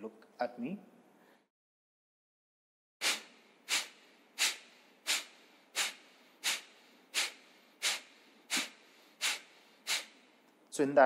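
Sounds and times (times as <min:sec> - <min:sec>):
quiet inhalations: 0:01.1 - 0:01.5, 0:03.0 - 0:10.6
man exhaling forcefully through nose: 0:03.0 - 0:10.3.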